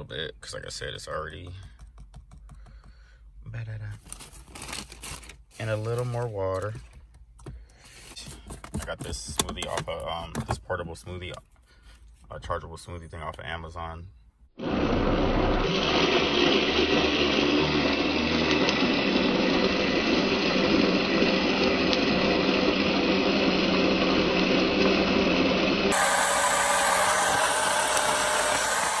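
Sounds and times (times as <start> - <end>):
portable blender whirring: 14.6 - 29.0.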